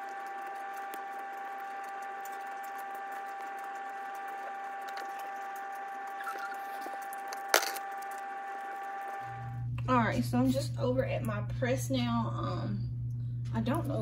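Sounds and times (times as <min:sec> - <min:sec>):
appliance humming and whining: 0:00.0 - 0:14.0.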